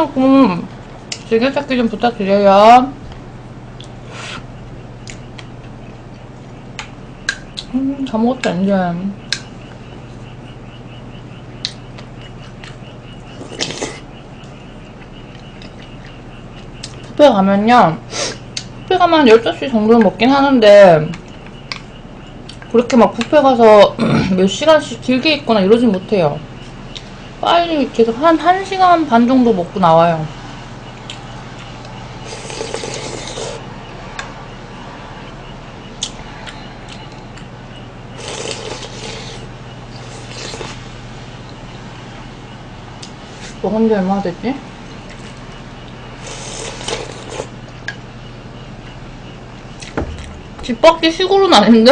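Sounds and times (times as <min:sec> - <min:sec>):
frogs calling: 0:00.0 - 0:51.9
low room hum: 0:00.0 - 0:51.9
eating noise: 0:11.6 - 0:14.1, 0:31.0 - 0:33.6, 0:38.2 - 0:40.9, 0:46.2 - 0:47.6
person slurping soup: 0:32.3 - 0:33.6, 0:46.2 - 0:47.5.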